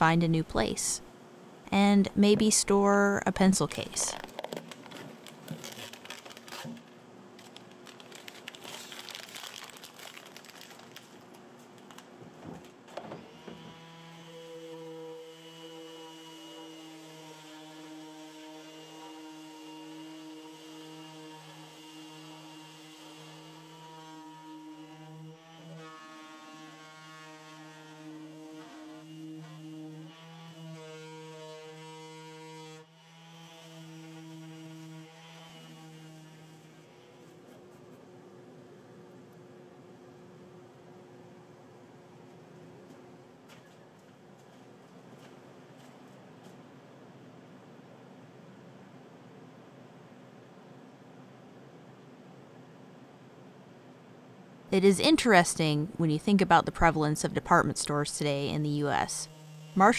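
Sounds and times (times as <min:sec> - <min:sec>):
paper crackling and crinkling: 0:04.0 - 0:12.2
paper tearing: 0:04.1 - 0:12.0.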